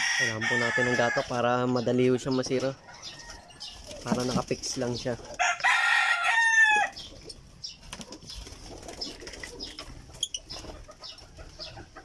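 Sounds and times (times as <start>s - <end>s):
rooster crowing: 0.0s - 1.4s, 5.4s - 7.0s.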